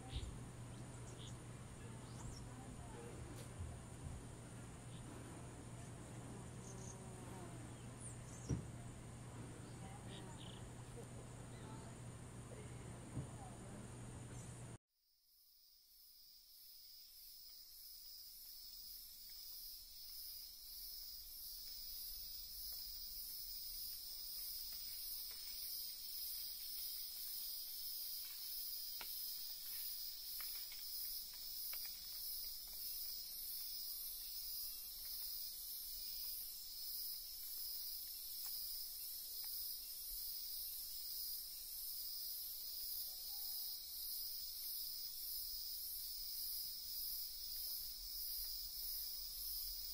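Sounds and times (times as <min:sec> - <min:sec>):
insect chorus droning: 0:00.0 - 0:49.9
shrill pulsing insect layer: 0:15.2 - 0:49.9.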